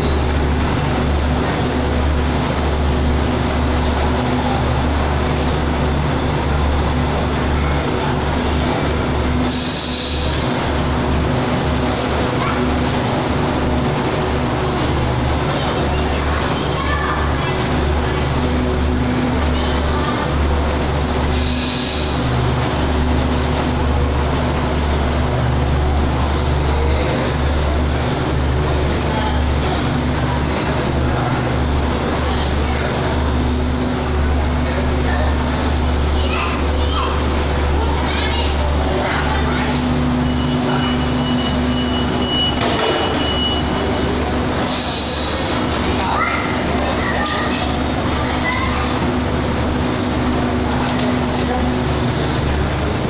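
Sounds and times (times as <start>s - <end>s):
passenger train rolling: 0.0s - 53.0s
sharp hiss of air: 9.5s - 10.5s, 21.3s - 22.3s, 44.7s - 45.5s.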